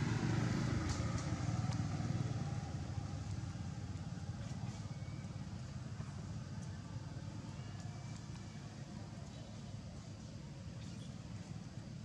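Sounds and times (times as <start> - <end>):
passing vehicle engine: 0.0 - 4.9.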